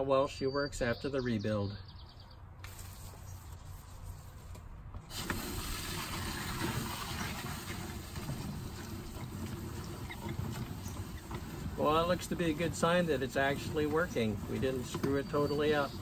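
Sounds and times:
water rushing through hose reel: 5.1s - 16.0s.

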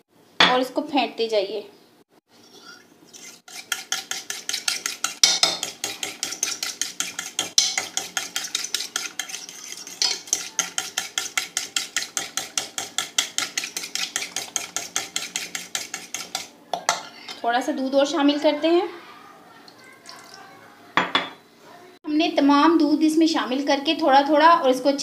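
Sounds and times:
utensil beating batter in bowl: 3.1s - 17.4s.

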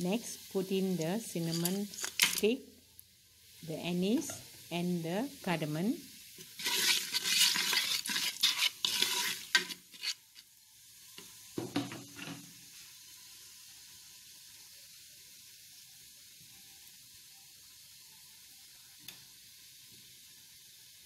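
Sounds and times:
spices crackling in hot oil: 0.0s - 21.0s.

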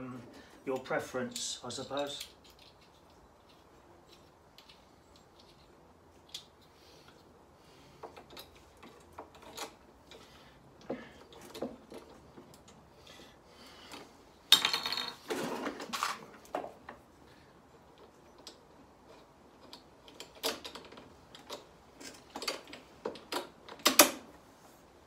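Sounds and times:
plastic and metal parts clicking: 18.0s - 24.2s.

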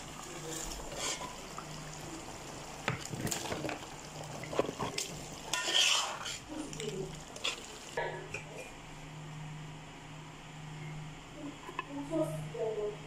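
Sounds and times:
stew sizzling: 0.0s - 8.9s
spatula scraping a pot: 0.8s - 1.4s, 4.4s - 6.5s.

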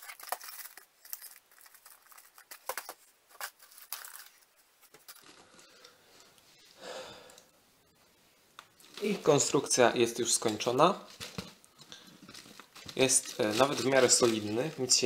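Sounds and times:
cardboard crinkling and rustling: 0.0s - 5.5s, 8.8s - 15.0s.

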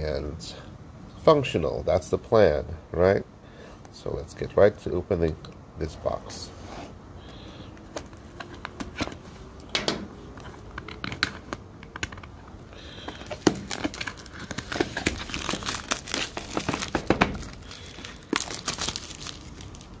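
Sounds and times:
plastic shrink wrap crinkling and tearing: 12.8s - 20.0s.

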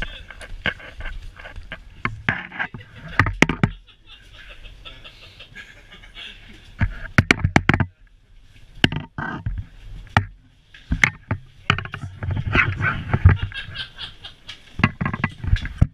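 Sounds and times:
skis and ski boots clacking: 0.0s - 4.0s, 6.6s - 15.9s
faint chatter: 0.0s - 7.1s.

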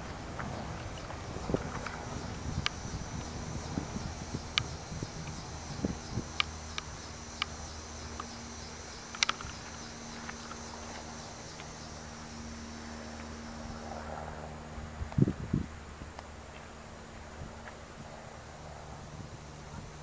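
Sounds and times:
sharp clicks of train wheels: 6.2s - 8.4s, 9.0s - 11.7s.

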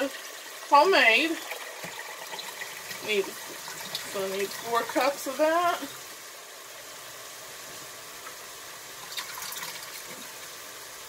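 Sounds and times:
liquid pouring into a pitcher: 1.3s - 5.2s, 9.0s - 10.6s.

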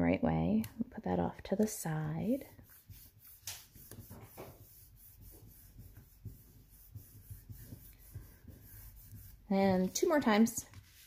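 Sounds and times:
fingers rubbing on paper: 2.2s - 11.0s.

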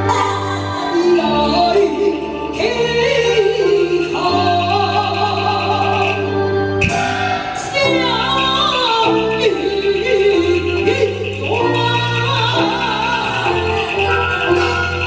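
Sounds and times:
amplified accompaniment: 0.0s - 15.0s
opera singing into microphone: 0.0s - 15.0s
sharp hit: 6.8s - 8.0s.

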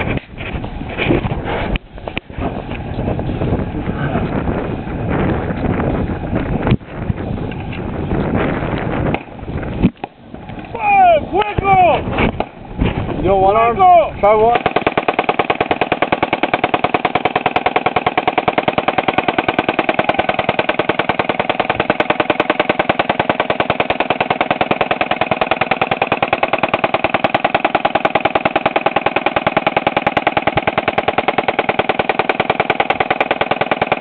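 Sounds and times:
machine gun firing long burst: 14.3s - 34.0s.

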